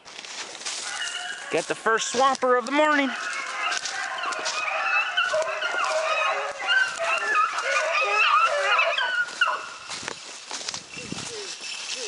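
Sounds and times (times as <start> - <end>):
pack of dogs baying: 0.7 - 10.0.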